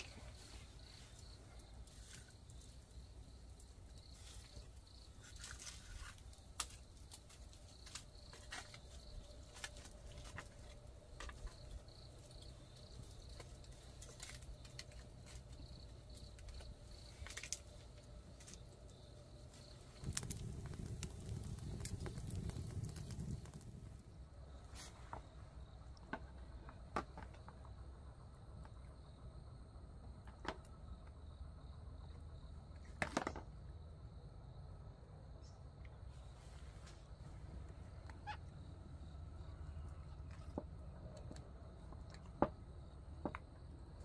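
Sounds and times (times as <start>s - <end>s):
insect chirring: 0.0s - 24.6s, 38.0s - 40.1s.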